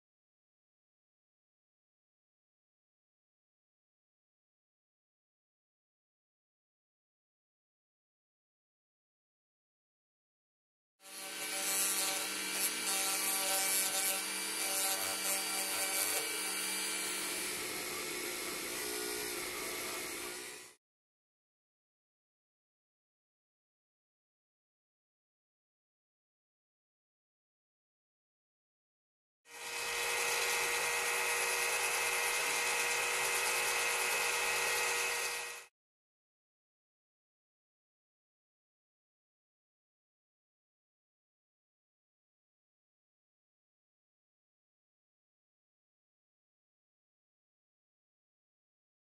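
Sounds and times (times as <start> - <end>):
rotary tool motor whine: 11.0 - 20.8, 29.5 - 35.7.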